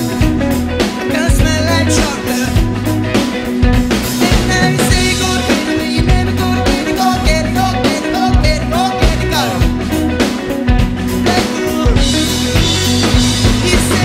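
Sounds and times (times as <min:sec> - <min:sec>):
bass guitar: 0:00.0 - 0:14.0
drum kit beat: 0:00.0 - 0:14.0
electric guitars: 0:00.0 - 0:14.0
man singing lead vocal: 0:01.0 - 0:02.8, 0:04.0 - 0:10.0, 0:11.2 - 0:14.0.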